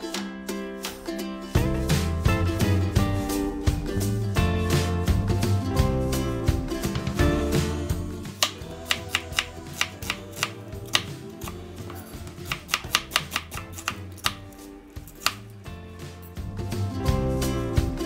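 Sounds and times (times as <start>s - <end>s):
soft background music: 0.0s - 18.0s
knife chopping on wooden board: 8.4s - 14.5s, 15.1s - 15.5s.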